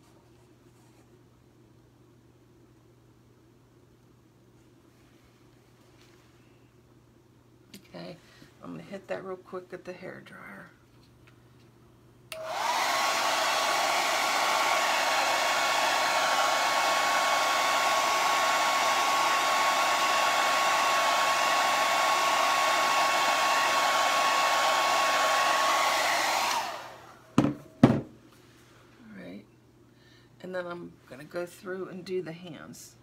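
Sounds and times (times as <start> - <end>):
hair dryer running: 12.3 - 28.0.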